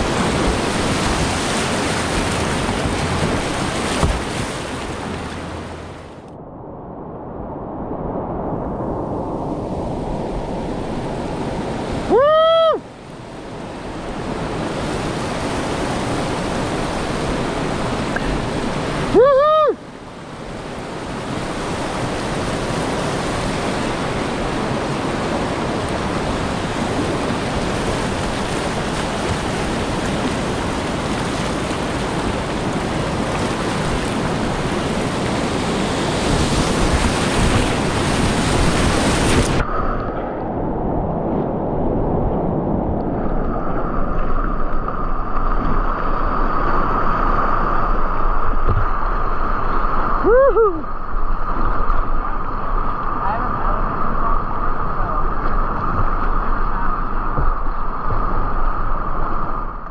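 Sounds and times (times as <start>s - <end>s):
whitewater rushing: 0.0s - 6.2s, 10.1s - 13.0s, 13.9s - 40.1s.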